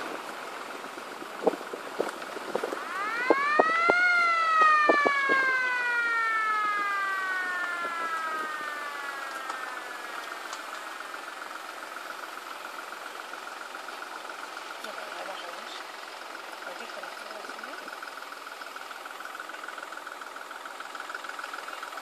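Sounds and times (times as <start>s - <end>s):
fire engine siren wail: 0.0s - 14.6s.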